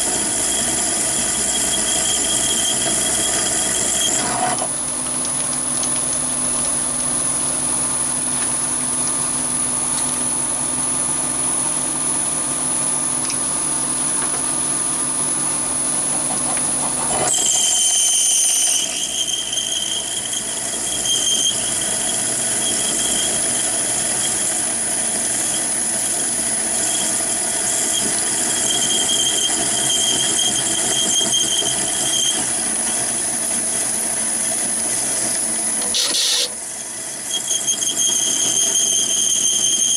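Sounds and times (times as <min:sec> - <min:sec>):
lathe drilling steel: 0:00.0 - 0:39.9
high screeching tone: 0:00.2 - 0:04.7, 0:16.2 - 0:23.6, 0:35.8 - 0:39.9.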